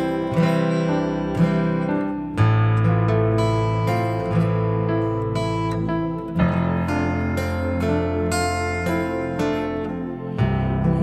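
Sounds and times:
acoustic guitar ballad: 0.0 - 11.0.

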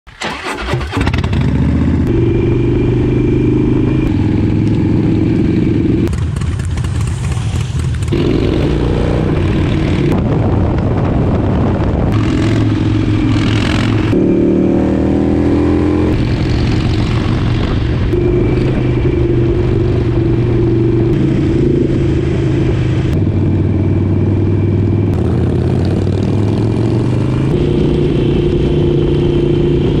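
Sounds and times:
wind noise: 0.3 - 30.0
motorcycle engine running: 1.0 - 30.0.

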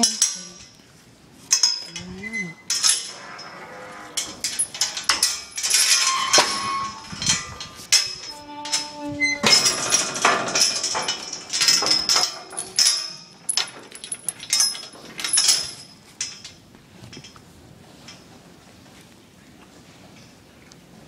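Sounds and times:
metal gate clanking and rattling: 0.0 - 0.8, 1.5 - 17.4.

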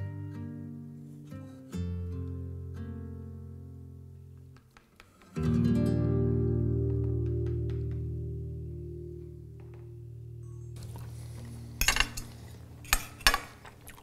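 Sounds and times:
guitar chord ringing: 0.0 - 4.1, 5.4 - 13.2
cutlery clinking on plates: 11.8 - 13.8.

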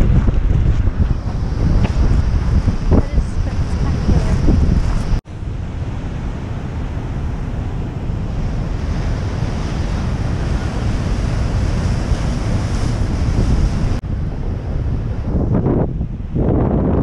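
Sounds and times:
ocean surf breaking: 0.0 - 16.4
wind buffeting microphone: 0.0 - 17.0.

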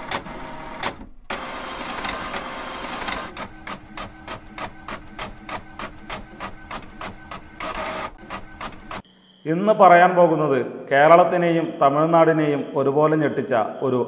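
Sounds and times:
rapid typewriter typing: 0.0 - 9.0
typewriter mechanical rasp: 0.0 - 9.0.

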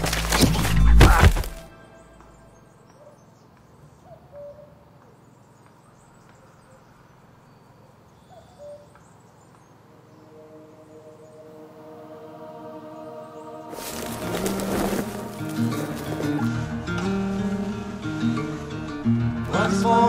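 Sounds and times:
running footsteps through undergrowth: 0.0 - 1.7, 13.7 - 16.8
faint bird chirps: 1.8 - 11.6.

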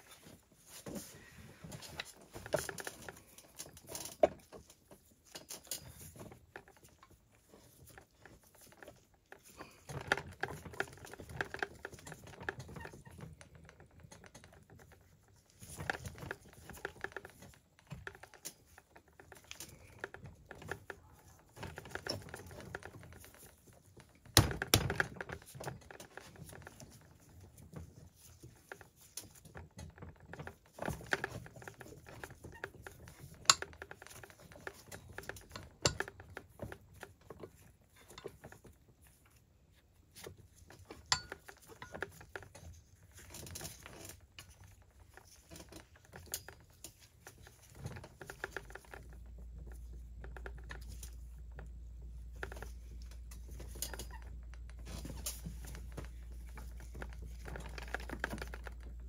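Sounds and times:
metal tool clicks and rattles: 33.0 - 36.4, 40.9 - 42.5.

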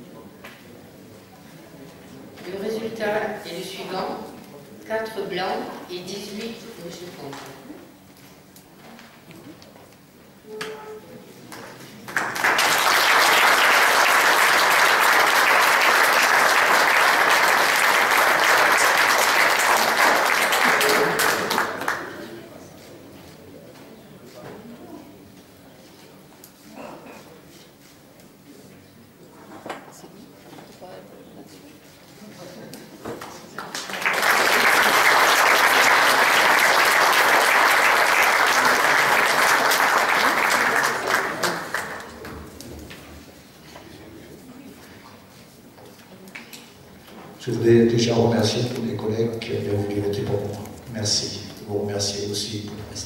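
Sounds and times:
audience applause: 12.0 - 22.4, 33.2 - 42.3.

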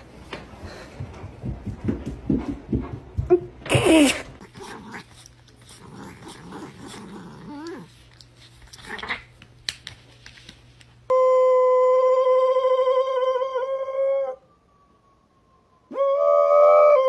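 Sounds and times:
dog howling: 11.1 - 14.7, 15.7 - 17.0.

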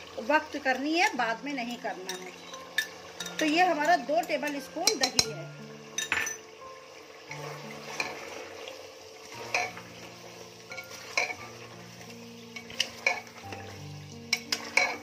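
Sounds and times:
food sizzling: 0.0 - 15.0
ladle clinking against pot: 2.1 - 5.4, 6.0 - 6.5, 9.4 - 9.8, 10.7 - 11.4, 12.6 - 13.4, 14.3 - 15.0
ladle stirring and scraping: 7.3 - 15.0.

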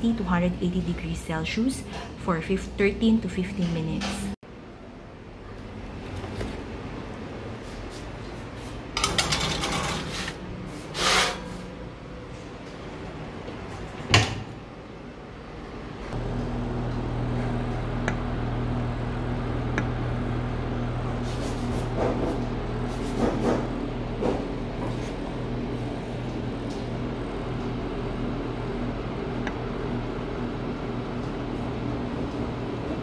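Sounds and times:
oven fan humming: 5.4 - 33.0
metal tray sliding onto rack: 9.0 - 11.6.

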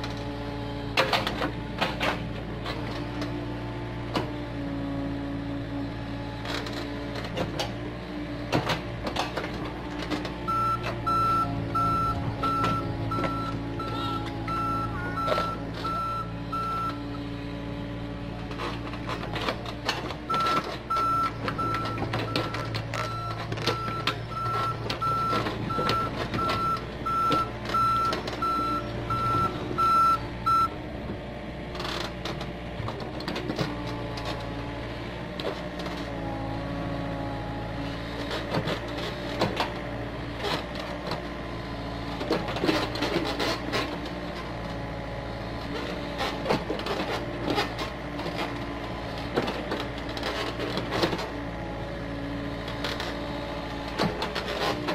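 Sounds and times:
excavator diesel engine running: 0.0 - 54.9
travel alarm beeping: 10.5 - 17.0, 20.3 - 30.7.

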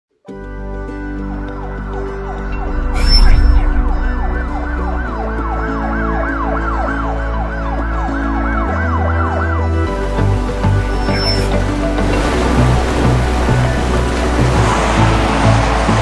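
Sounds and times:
held bass and synth tones: 2.0 - 14.6
siren-like wail: 2.5 - 9.9.

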